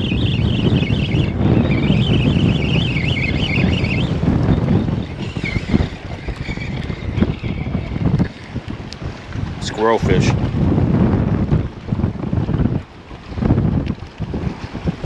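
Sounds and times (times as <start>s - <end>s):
wavering high whistle: 0.0s - 7.7s
wind buffeting microphone: 0.0s - 15.0s.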